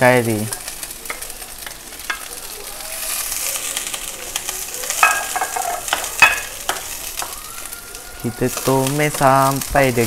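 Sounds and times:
chillies sizzling in hot oil: 0.0s - 10.0s
spatula knocking on pan: 5.0s - 7.4s.

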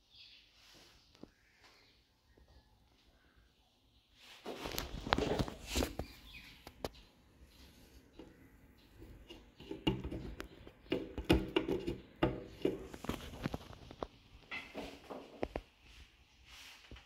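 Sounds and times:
wooden window creaking and knocking: 9.0s - 13.7s.

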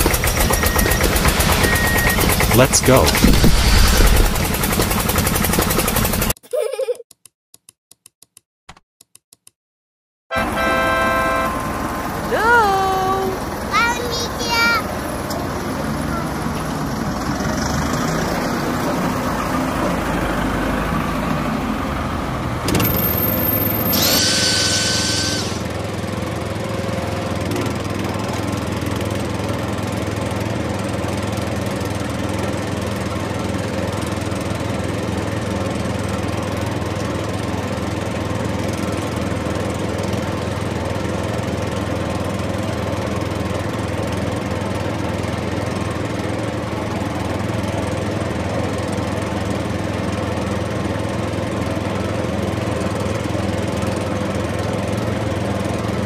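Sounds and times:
small tractor engine drone: 0.0s - 6.4s, 10.3s - 56.0s
brief high-toned sound: 0.1s - 4.5s.

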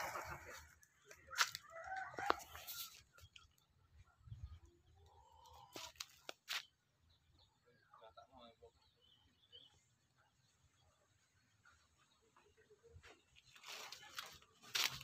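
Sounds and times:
chickens clucking: 0.0s - 6.3s.

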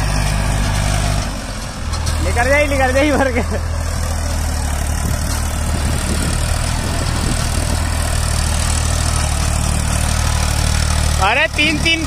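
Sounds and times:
diesel tractor engine running: 0.0s - 12.0s.

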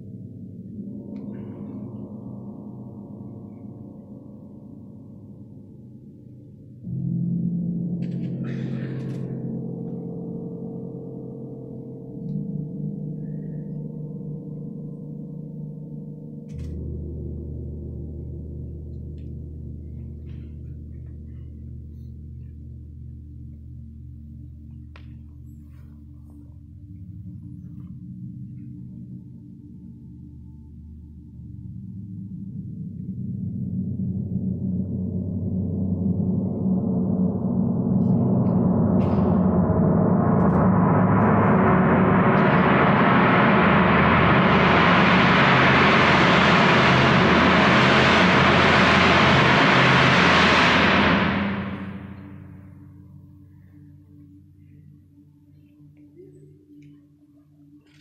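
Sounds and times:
gong ringing: 37.3s - 52.6s.

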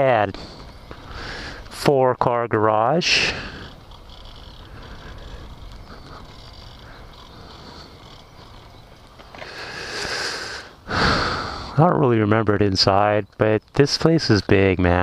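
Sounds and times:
rider breathing out: 0.0s - 1.8s, 3.0s - 11.8s
wind and rolling rumble: 0.0s - 15.0s.

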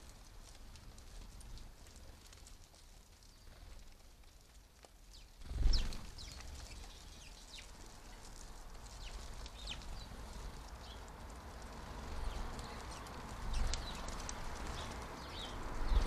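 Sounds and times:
sparrows chirping: 5.1s - 16.0s.

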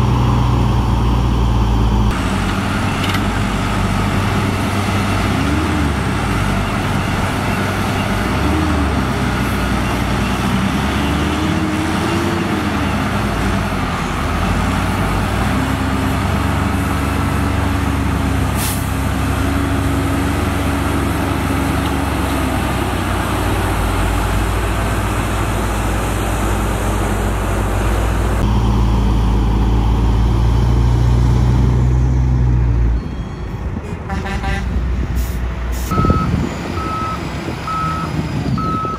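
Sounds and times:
heavy diesel engines running hard: 0.0s - 38.9s.

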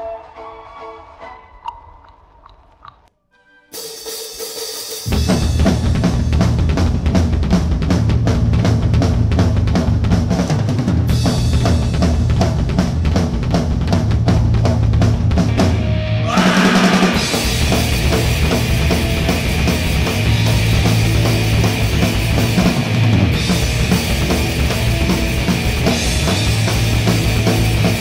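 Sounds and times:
live rock band playing: 3.7s - 8.0s, 15.3s - 28.0s
drum kit pounding: 3.8s - 28.0s.

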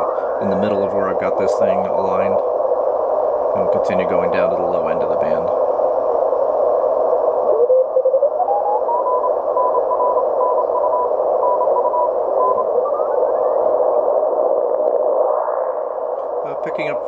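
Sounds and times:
radio band noise hiss: 0.0s - 17.0s
morse code signal: 7.4s - 14.4s.

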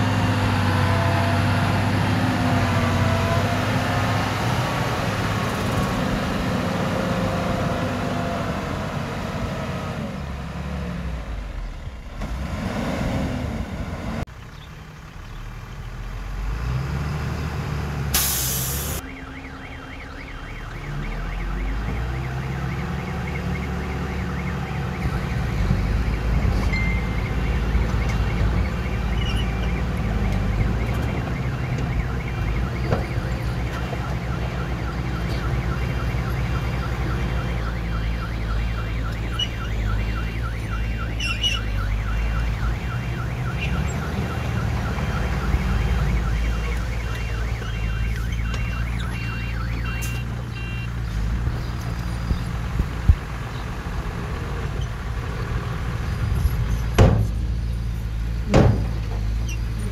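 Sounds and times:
diesel engine under load: 0.0s - 59.9s
short loud hiss: 18.2s - 19.0s.

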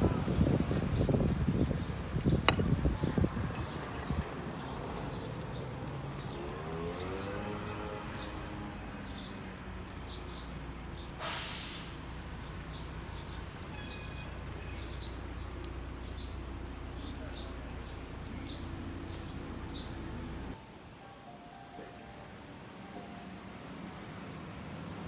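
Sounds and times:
brief hiss: 11.2s - 12.0s.

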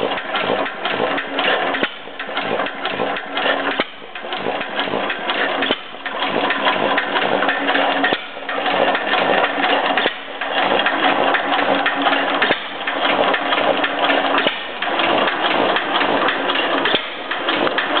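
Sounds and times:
stationary engine clattering: 0.0s - 18.0s.

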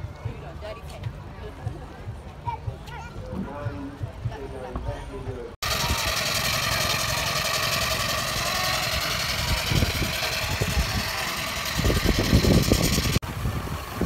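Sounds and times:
steam engine mechanical beat: 5.6s - 13.2s.

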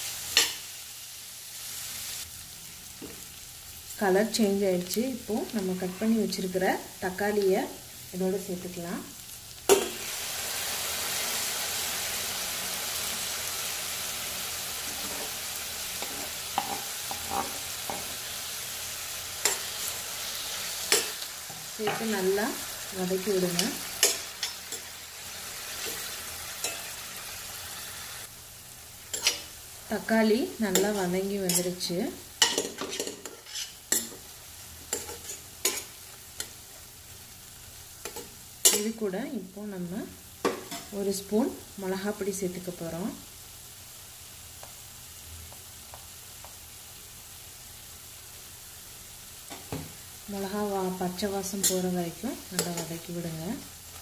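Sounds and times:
vegetables sizzling in hot oil: 0.0s - 54.0s
spatula scraping a frying pan: 5.7s - 6.2s, 14.8s - 15.4s, 16.0s - 18.2s, 32.4s - 34.3s, 34.9s - 36.5s.

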